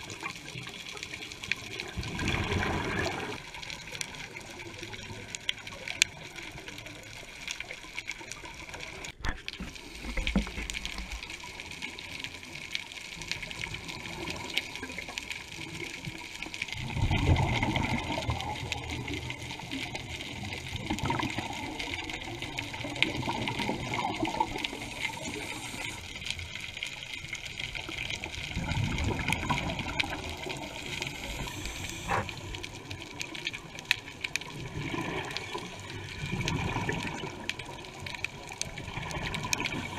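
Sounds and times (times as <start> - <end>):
exhaled bubbles rushing: 1.6 - 5.2, 13.5 - 39.9
regulator breathing hiss: 9.6 - 10.7, 24.6 - 26.2, 30.8 - 32.6.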